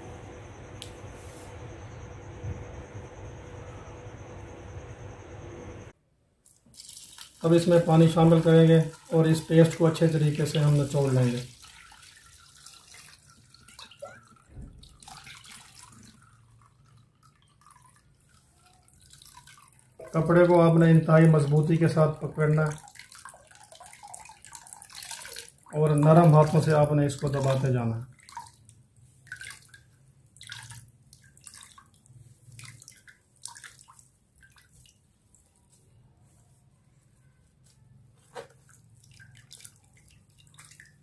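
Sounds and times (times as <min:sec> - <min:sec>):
liquid splashing and dripping: 0:06.4 - 0:35.8, 0:38.4 - 0:41.0.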